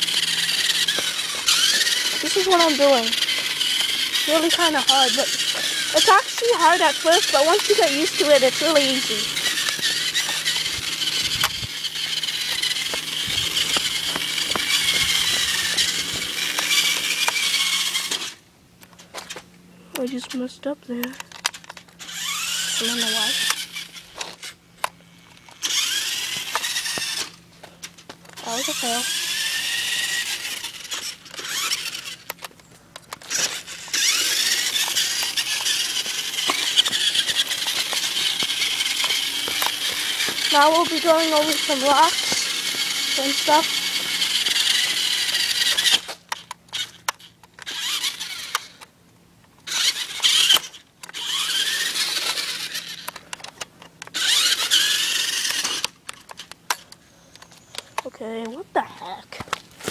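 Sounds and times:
toy truck motor whine: 0.0s - 18.4s, 21.0s - 48.9s, 49.6s - 58.2s
wheels clicking on pavement: 0.0s - 59.9s.

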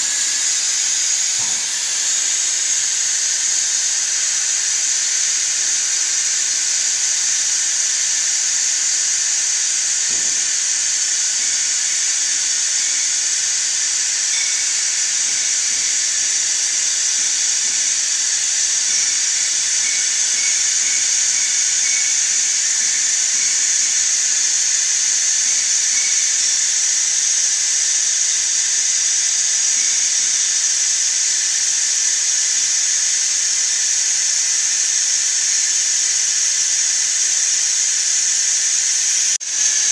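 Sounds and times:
compressed air hissing: 0.0s - 27.6s.

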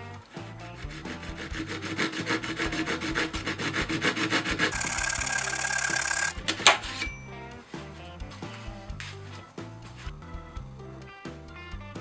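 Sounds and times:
hand saw cutting wood: 0.4s - 7.0s.

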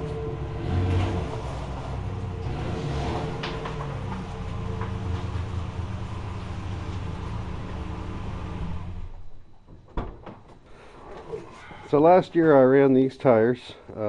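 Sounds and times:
truck engine idling: 0.0s - 9.4s.

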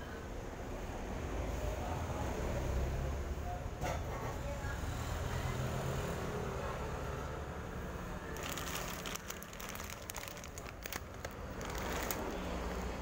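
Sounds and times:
plastic packaging crinkling: 8.3s - 13.0s.

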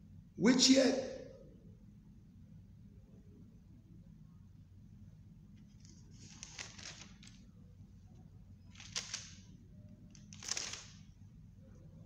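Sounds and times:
faint room hum: 0.0s - 12.0s
thin pages rustling: 5.6s - 7.5s, 8.7s - 9.4s, 10.1s - 11.0s.

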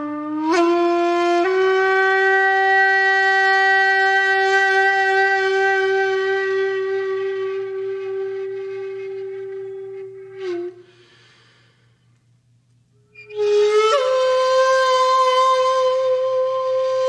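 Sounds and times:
breathy wind instrument notes: 10.3s - 12.1s.

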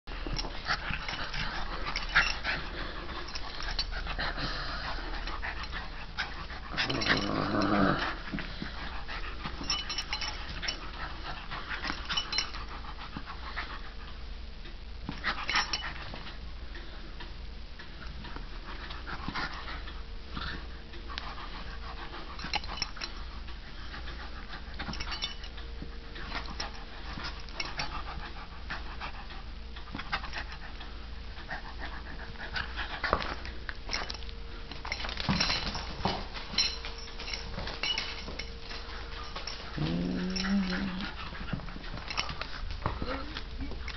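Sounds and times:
dog growling: 6.6s - 8.3s, 39.5s - 41.6s.

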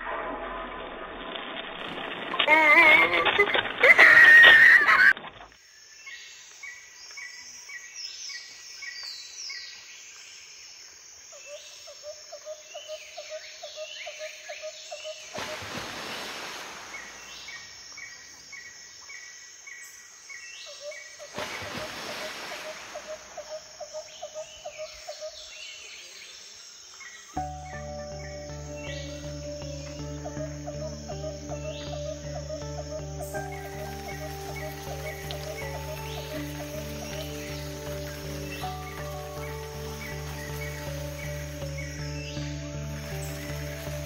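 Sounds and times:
quick pulsed lower bird notes: 27.4s - 44.0s.

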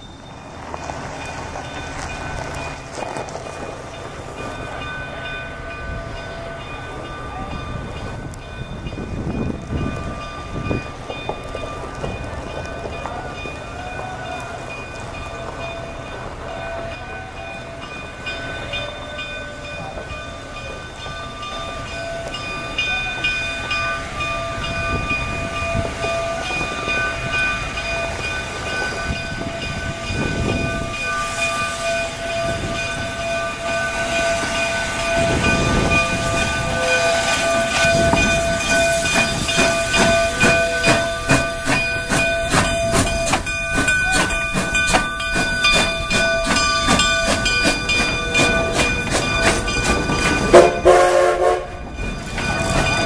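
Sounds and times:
steam train moving: 0.0s - 53.0s
steam hissing: 23.5s - 51.3s.

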